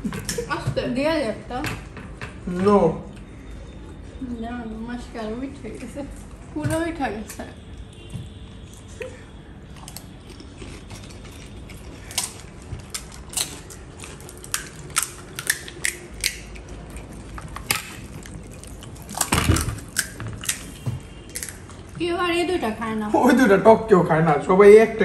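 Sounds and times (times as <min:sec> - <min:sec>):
crisp shells crunching: 0:09.8 - 0:21.7.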